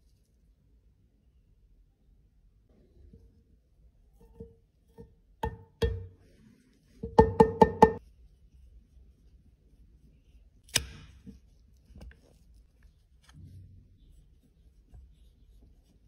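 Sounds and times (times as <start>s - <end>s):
hollow knocks on plastic case: 7.0s - 8.0s.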